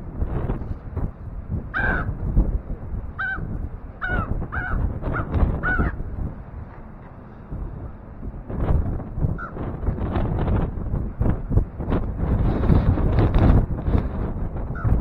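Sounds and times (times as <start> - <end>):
wind rumble on microphone: 0.0 - 15.0
crows cawing: 1.7 - 2.1, 3.2 - 6.0, 9.4 - 9.6.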